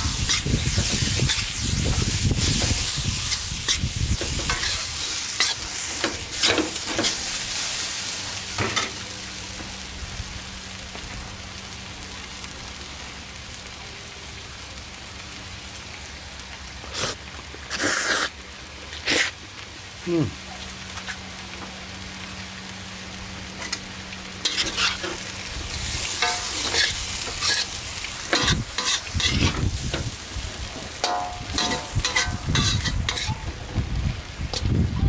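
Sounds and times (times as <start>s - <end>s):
metal utensils scraping a wok: 0.0s - 7.9s, 24.4s - 33.4s
noodles sizzling in a wok: 0.0s - 35.0s.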